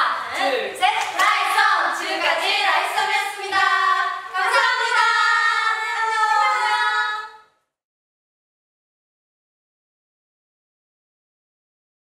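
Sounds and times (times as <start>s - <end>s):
young women singing in unison: 0.0s - 7.6s.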